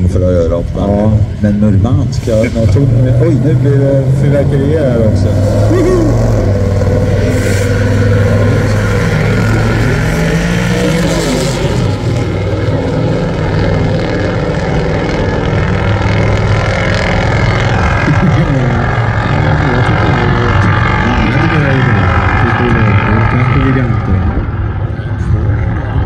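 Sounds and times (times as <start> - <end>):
drag car engines at full throttle: 0.0 - 26.0.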